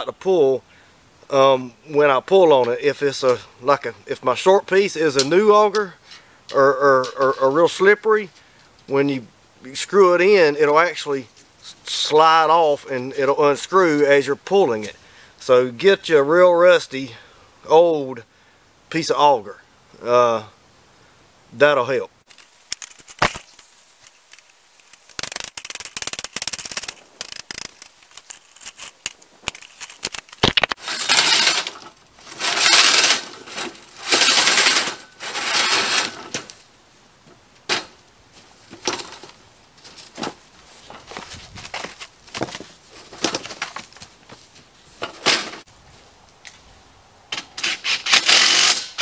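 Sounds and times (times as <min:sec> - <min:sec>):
clicks and knocks of metal parts: 0:22.3 - 0:36.6, 0:37.6 - 0:38.0, 0:38.7 - 0:40.4.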